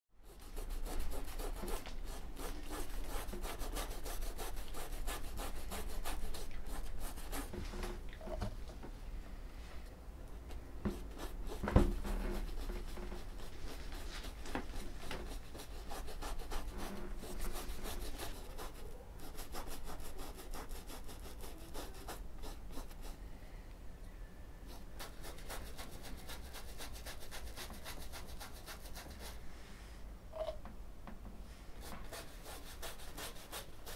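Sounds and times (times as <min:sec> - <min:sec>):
scratchy rubbing on rough surface: 0:00.2 - 0:07.9, 0:10.9 - 0:23.2, 0:31.8 - 0:33.9.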